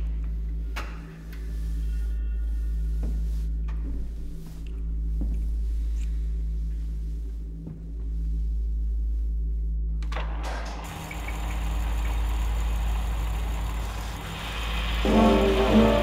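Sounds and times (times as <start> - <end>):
low steady hum: 0.0 - 16.0
film projector motor running: 10.8 - 16.0.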